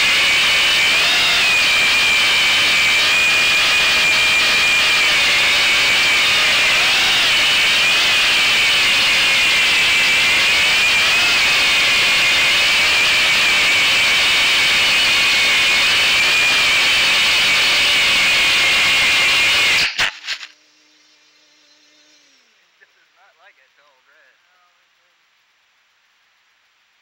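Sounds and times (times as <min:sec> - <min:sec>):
model plane propeller whining: 0:00.0 - 0:19.8.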